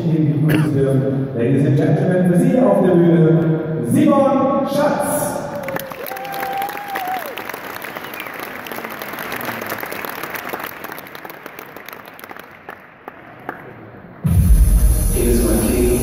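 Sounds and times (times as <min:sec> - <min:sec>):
audience applauding: 0:05.6 - 0:14.1
loud music with heavy bass: 0:14.3 - 0:16.0.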